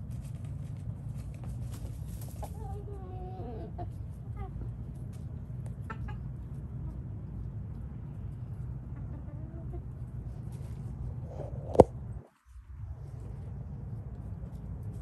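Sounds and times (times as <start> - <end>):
chickens clucking: 0.1 - 11.9
low rumble: 10.0 - 15.0.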